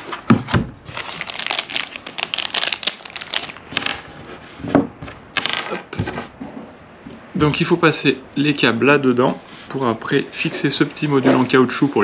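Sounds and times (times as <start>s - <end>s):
plastic packaging crinkling: 0.8s - 3.8s.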